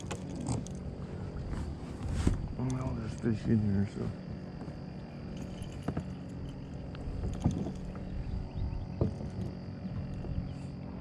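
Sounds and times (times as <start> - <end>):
steady low hum: 0.0 - 11.0
sharp knocks in a kayak: 8.9 - 10.4.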